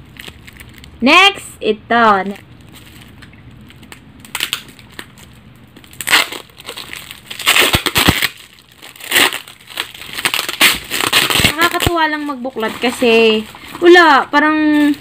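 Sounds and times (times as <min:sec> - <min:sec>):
plastic wrap crinkling and tearing: 0:00.0 - 0:01.1, 0:02.1 - 0:15.0.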